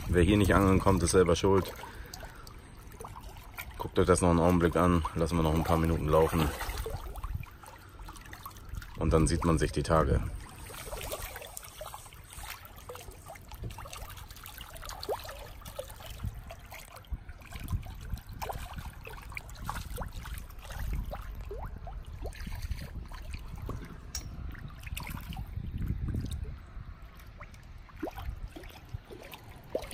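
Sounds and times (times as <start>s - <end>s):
water trickling and lapping: 0.0s - 29.9s
fish splashing at surface: 5.0s - 9.0s, 10.3s - 25.5s.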